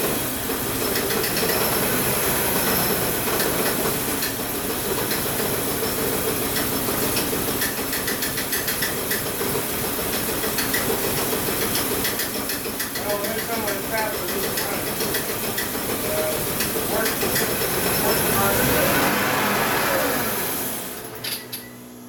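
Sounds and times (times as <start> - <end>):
car engine running: 8.6 - 22.0
engine hiss: 13.9 - 21.6.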